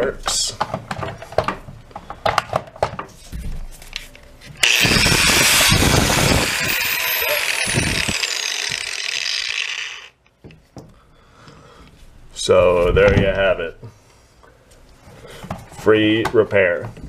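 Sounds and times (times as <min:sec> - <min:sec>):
angle grinder running: 0:04.6 - 0:10.2.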